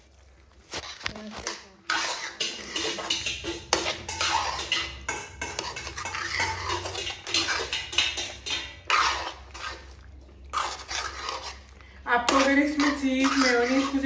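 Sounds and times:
metal spatula scraping pan: 0.7s - 14.0s.

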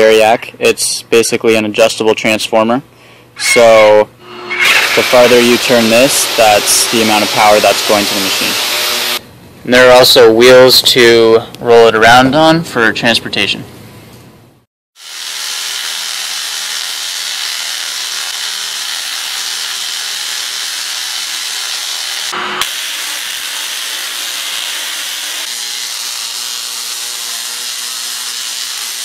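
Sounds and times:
tesla coil hissing buzz: 3.4s - 9.2s, 15.0s - 29.0s.

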